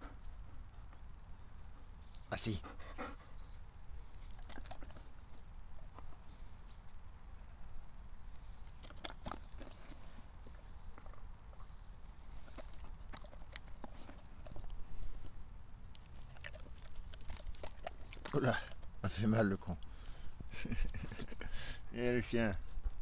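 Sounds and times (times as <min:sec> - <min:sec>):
faint bird chirps: 0:01.3 - 0:08.8
dog chewing with wet mouth clicks: 0:03.9 - 0:06.2, 0:08.3 - 0:19.0.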